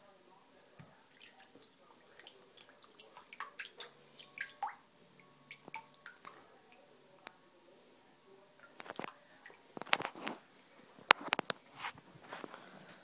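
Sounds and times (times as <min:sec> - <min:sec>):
small splashes and drips: 0:00.6 - 0:07.4, 0:08.6 - 0:10.4
water sloshing in a sink: 0:00.7 - 0:07.4, 0:08.6 - 0:10.5.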